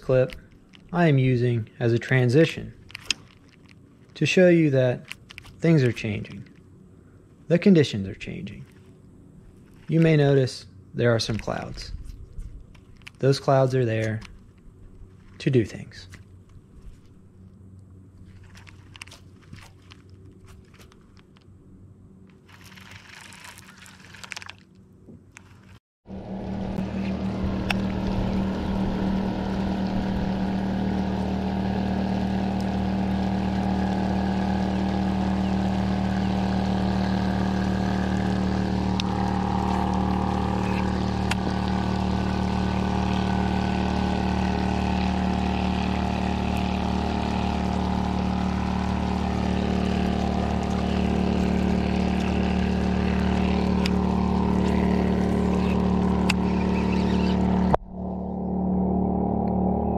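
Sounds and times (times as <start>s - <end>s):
boat motor humming: 26.0s - 59.9s.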